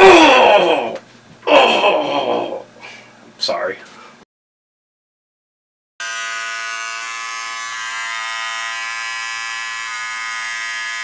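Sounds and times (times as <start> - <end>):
electric beard trimmer buzzing: 6.0 - 11.0.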